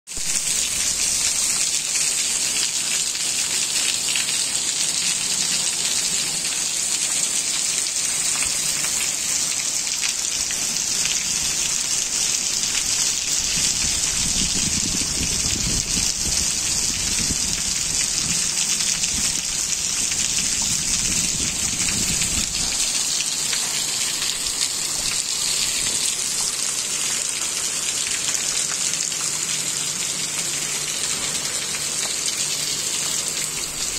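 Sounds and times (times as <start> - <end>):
heavy rain splashing on water: 0.1 - 33.9.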